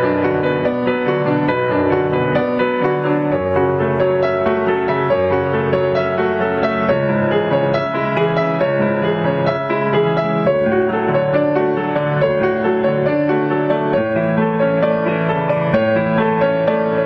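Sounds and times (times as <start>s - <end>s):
solo piano piece: 0.0s - 17.0s.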